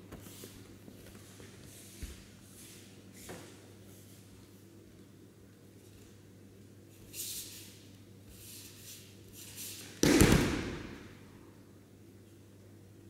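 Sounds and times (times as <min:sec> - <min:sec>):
soft brushing: 0:00.2 - 0:04.6
body slapping onto mat: 0:10.0 - 0:11.1.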